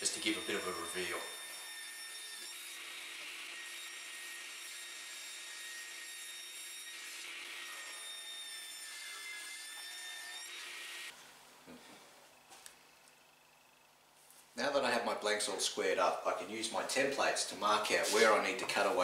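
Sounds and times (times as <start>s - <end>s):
panel saw whining: 0.0s - 11.2s
saw blade cutting wood: 0.0s - 11.2s, 17.9s - 18.5s.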